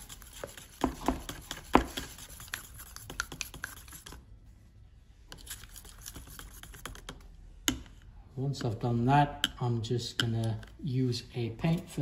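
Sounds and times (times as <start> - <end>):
stick tapping and scraping plastic cup: 0.0 - 4.2, 5.3 - 7.9.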